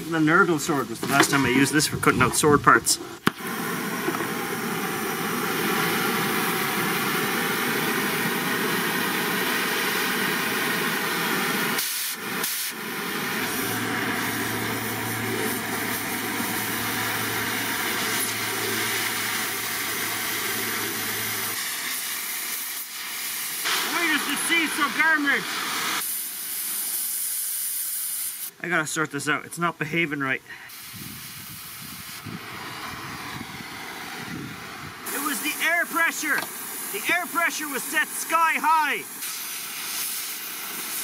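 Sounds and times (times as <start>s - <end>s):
cutting torch flame hissing: 0.0s - 28.6s, 30.5s - 41.0s
low hum: 12.8s - 21.6s.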